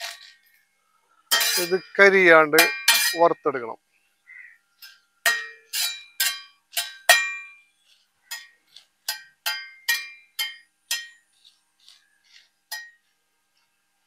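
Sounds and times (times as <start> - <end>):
metal spatula clinking on pan: 1.3 - 2.0, 2.6 - 3.2, 4.8 - 7.6, 8.3 - 11.2.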